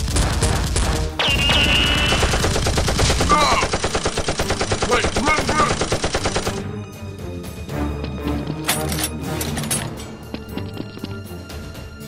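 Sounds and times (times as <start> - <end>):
rapid automatic gunfire: 0.0 - 6.6.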